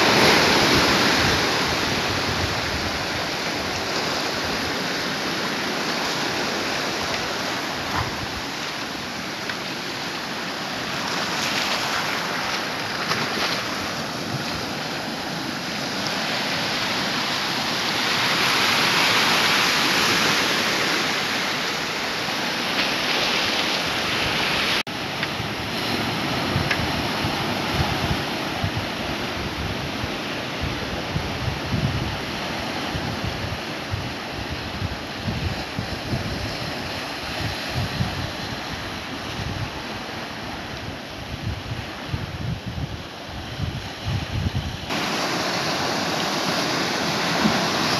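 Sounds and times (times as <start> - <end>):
wind buffeting the microphone: 0.0 - 9.2, 23.8 - 47.9
surf washing over rocks: 0.0 - 47.9.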